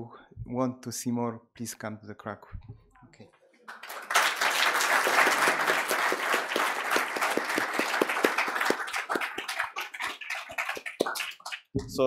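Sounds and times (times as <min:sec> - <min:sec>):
audience applauding: 0:03.7 - 0:11.7.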